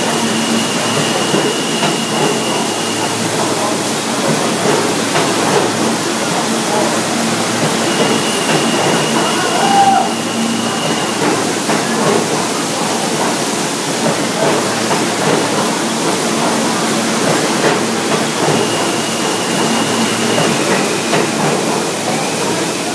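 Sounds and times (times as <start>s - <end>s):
water gushing from pipe: 0.0s - 22.9s.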